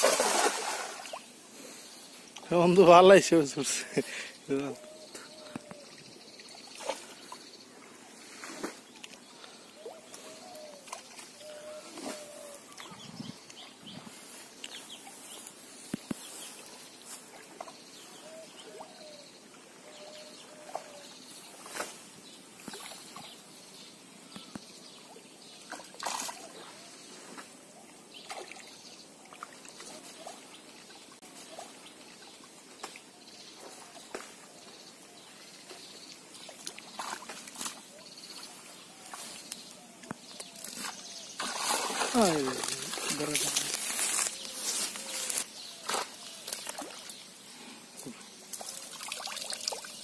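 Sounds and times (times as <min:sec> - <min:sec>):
water splashes and drips: 0:00.0 - 0:01.3, 0:25.6 - 0:26.6, 0:28.2 - 0:34.4, 0:36.1 - 0:37.9, 0:40.4 - 0:44.3, 0:45.3 - 0:47.3, 0:48.0 - 0:50.0
pond water sloshing and trickling: 0:00.0 - 0:19.6, 0:20.4 - 0:50.0.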